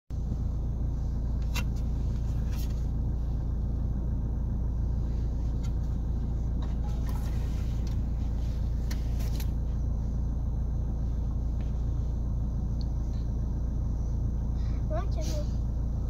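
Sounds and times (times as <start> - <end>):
car idling rumble: 0.1 - 16.0.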